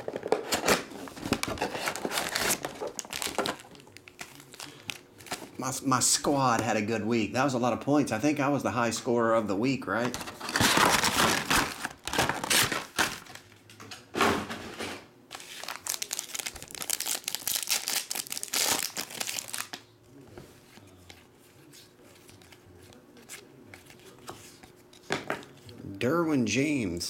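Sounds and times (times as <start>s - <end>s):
paper rustle: 0.0s - 5.5s, 10.0s - 13.6s
faint handling sounds: 0.0s - 5.6s, 18.3s - 26.0s
foil wrapper crinkling and ripping: 1.0s - 5.4s, 10.1s - 13.4s, 15.3s - 19.8s.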